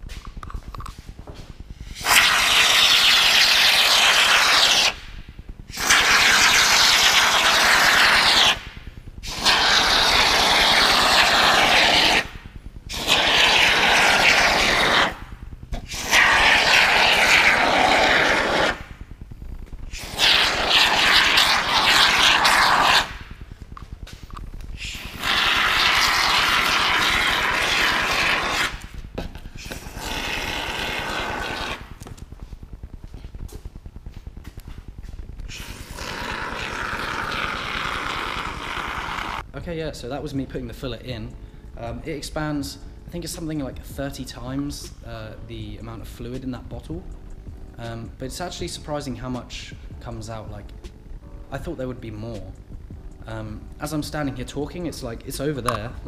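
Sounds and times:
aerosol foam spraying: 1.9 - 5.0, 5.7 - 18.9, 19.9 - 23.3, 24.8 - 29.0, 29.6 - 32.2, 35.5 - 39.4.

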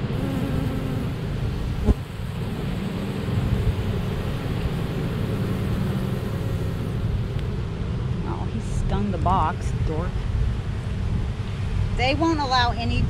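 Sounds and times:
honeybees buzzing: 0.0 - 7.6.

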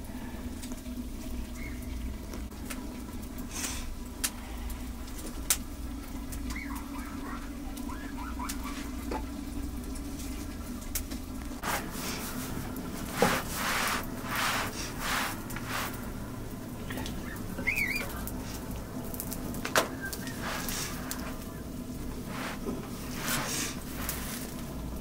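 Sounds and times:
wood fire crackling and popping: 1.4 - 7.0, 16.9 - 25.0
hands brushing dough: 11.6 - 16.2, 20.0 - 24.8
faint chirps: 19.9 - 21.2.

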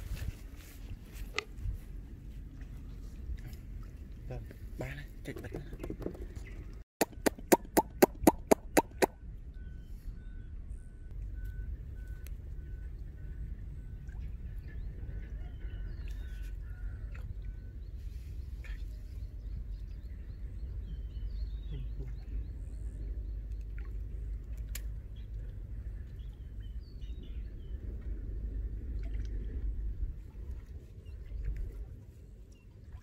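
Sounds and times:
low rumble: 17.2 - 33.0.

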